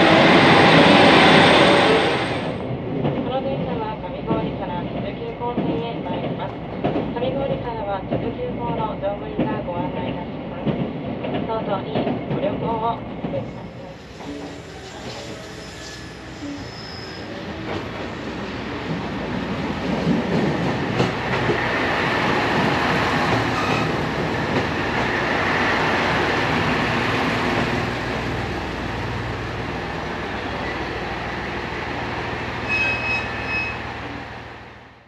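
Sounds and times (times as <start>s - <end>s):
train rail and wheel noise: 0.0s - 35.0s
brief high-pitched squeal: 13.9s - 17.5s, 32.6s - 34.0s.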